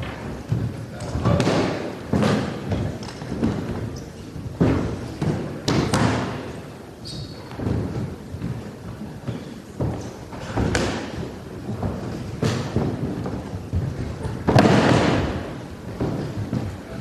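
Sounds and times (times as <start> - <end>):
cloth and feet rustling: 0.0 - 17.0.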